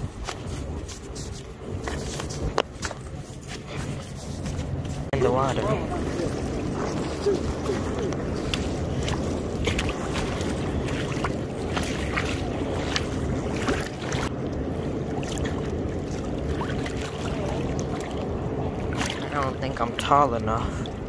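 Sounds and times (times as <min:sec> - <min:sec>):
water sloshing around wading legs: 0:00.0 - 0:21.0
wind rumble on microphone: 0:00.0 - 0:21.0.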